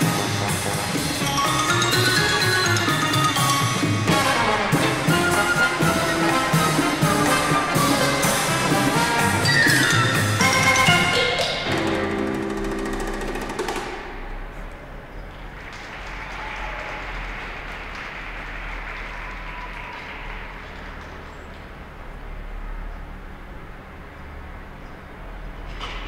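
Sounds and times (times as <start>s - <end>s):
recorded music held chord: 0.0s - 14.5s
applause echoing in arena: 15.3s - 22.2s.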